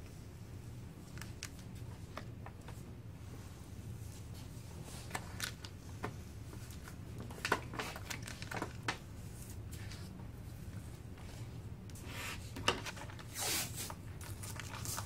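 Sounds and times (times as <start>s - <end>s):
low steady hum: 0.0s - 15.0s
crinkling clicks: 1.1s - 2.3s, 7.2s - 9.0s.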